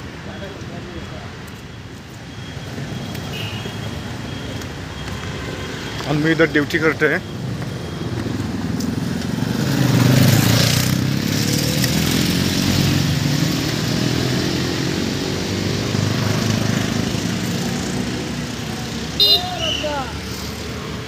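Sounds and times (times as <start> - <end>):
vehicle engines running: 0.0 - 21.0
motorcycle passing: 7.4 - 21.0.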